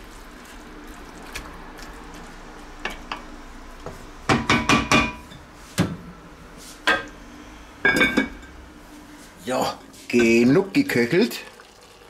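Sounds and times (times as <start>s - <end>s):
wooden spatula stirring in pot: 0.0s - 5.8s
spatula knocking on pot: 3.9s - 5.2s.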